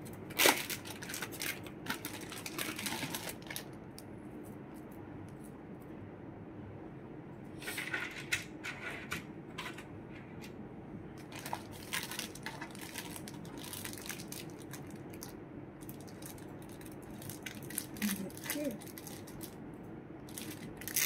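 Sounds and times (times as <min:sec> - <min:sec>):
wrapping material crinkling: 0:00.3 - 0:03.8, 0:11.2 - 0:19.6, 0:20.3 - 0:21.0.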